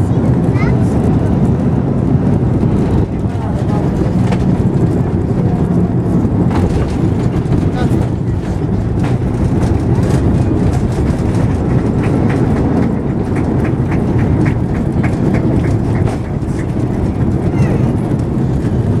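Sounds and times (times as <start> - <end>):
airliner cabin rumble: 0.0 - 19.0
wheels knocking over joints: 6.4 - 19.0.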